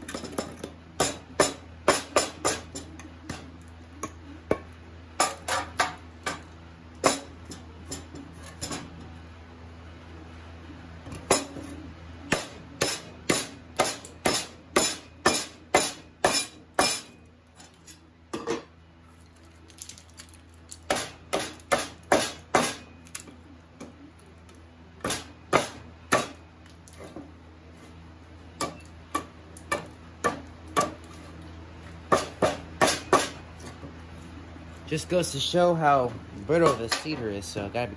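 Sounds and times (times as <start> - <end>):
wood splitting: 19.6 - 23.4.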